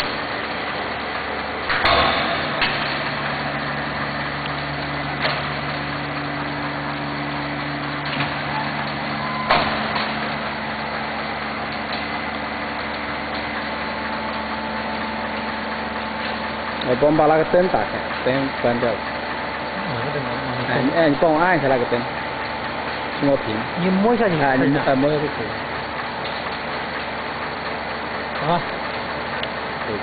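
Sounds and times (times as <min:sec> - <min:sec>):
vacuum pump motor hum: 0:00.0 - 0:30.0
machine lid clunking: 0:01.7 - 0:03.3, 0:08.0 - 0:10.4.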